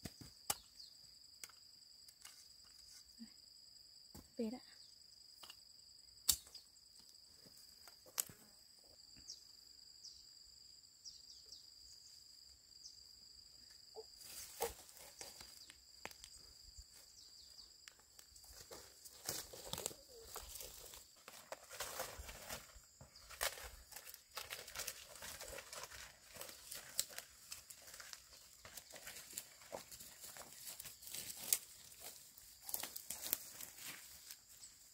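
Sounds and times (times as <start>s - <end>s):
insects droning: 0.0s - 34.9s
rustling and scraping: 18.4s - 34.6s.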